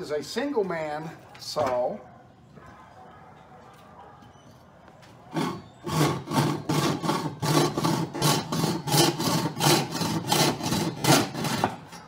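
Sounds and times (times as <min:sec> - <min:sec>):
saw rasping through wood: 0:05.3 - 0:12.0.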